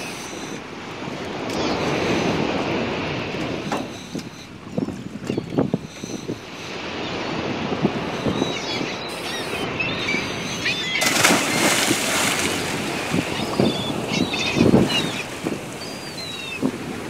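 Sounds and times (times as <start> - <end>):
birds chirping: 0.0 - 2.6, 3.4 - 17.0
wind buffeting microphone: 0.0 - 17.0
loud splash into water: 11.0 - 12.9
water sloshing: 11.0 - 17.0.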